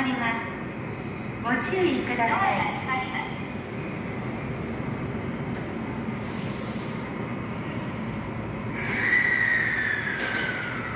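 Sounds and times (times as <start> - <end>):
train low rumble: 0.0 - 10.9
air hiss: 6.2 - 8.1, 8.7 - 10.1.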